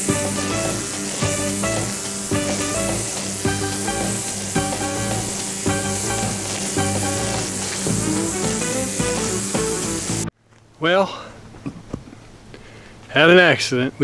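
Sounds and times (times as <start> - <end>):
instrumental music with steady beat: 0.0 - 10.3
steady high hiss: 0.0 - 11.1.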